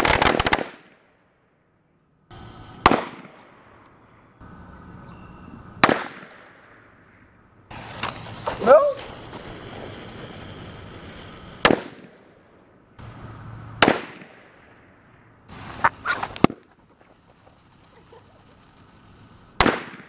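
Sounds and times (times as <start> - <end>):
steady hiss: 2.0 - 20.0
firecrackers banging: 2.3 - 3.8, 5.8 - 7.0, 7.7 - 12.4, 13.0 - 20.0.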